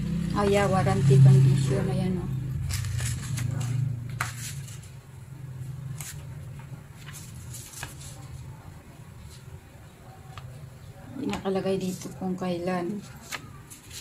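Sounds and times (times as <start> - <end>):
paper rustling and crinkling: 2.6 - 5.0, 5.9 - 9.6, 12.8 - 14.0.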